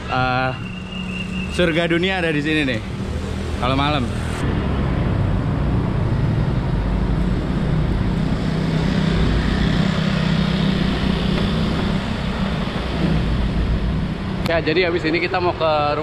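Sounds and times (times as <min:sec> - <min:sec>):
motor scooter engines: 0:00.0 - 0:16.0
wind rumble: 0:00.7 - 0:16.0
bicycle on stone-paved street: 0:05.2 - 0:14.4.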